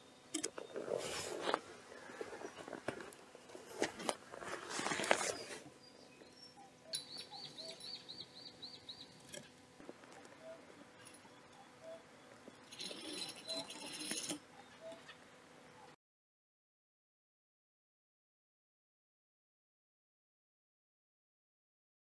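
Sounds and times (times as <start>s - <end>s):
scuffing and scraping on ground: 0.8s - 5.7s
bird chirping: 5.2s - 9.6s, 10.2s - 16.0s.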